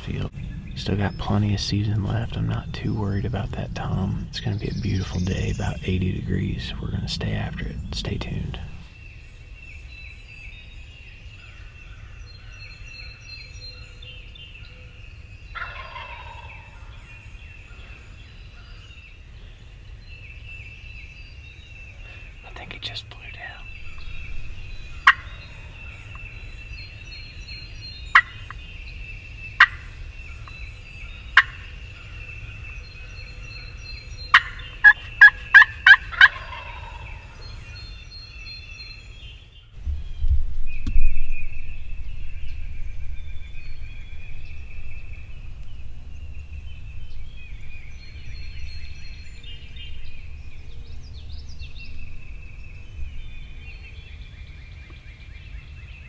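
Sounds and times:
low rumbling noise: 0:00.0 - 0:11.4, 0:16.5 - 0:37.9, 0:39.1 - 0:55.8
wild turkey calls: 0:11.4 - 0:19.0, 0:21.9 - 0:29.0, 0:29.6 - 0:39.4.

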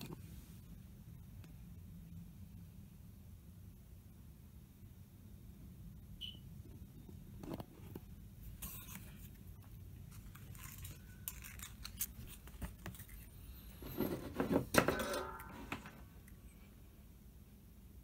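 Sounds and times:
metal tools clicking and scraping: 0:08.6 - 0:09.2.

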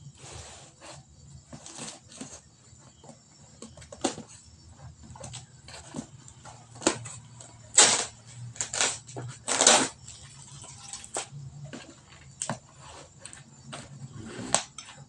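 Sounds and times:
scissors cutting packing tape: 0:07.8 - 0:10.0.

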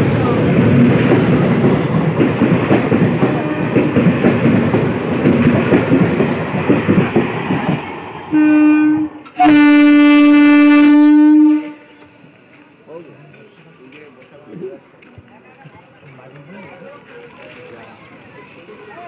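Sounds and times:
train wheels clattering on rails: 0:00.0 - 0:08.6
train horn blasts: 0:03.3 - 0:03.9, 0:08.3 - 0:12.2.

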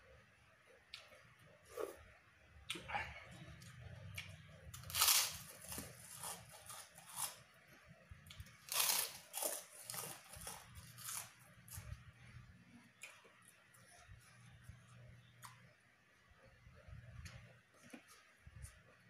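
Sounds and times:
crisp cracker crunches: 0:04.8 - 0:07.4, 0:08.6 - 0:11.4.

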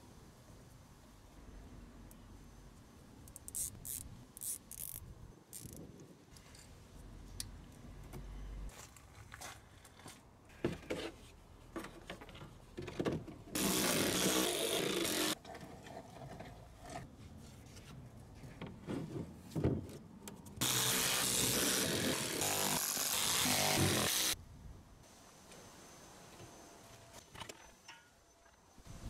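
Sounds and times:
power tool running: 0:13.6 - 0:15.4, 0:20.6 - 0:24.4.

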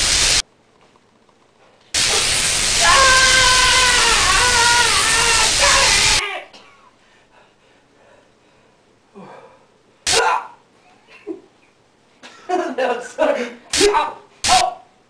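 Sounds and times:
electric crackling hiss: 0:00.0 - 0:00.4, 0:02.0 - 0:06.2
man yelling: 0:02.8 - 0:06.6, 0:10.1 - 0:10.6, 0:13.7 - 0:14.9.

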